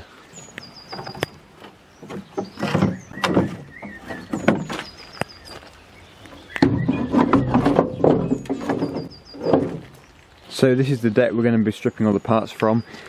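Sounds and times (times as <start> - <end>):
low rough metal grinding: 6.2 - 10.7.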